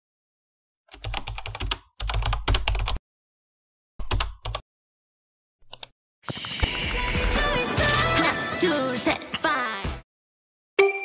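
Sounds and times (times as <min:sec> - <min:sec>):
keyboard typing: 0:00.9 - 0:03.0, 0:04.0 - 0:04.6, 0:05.6 - 0:06.4.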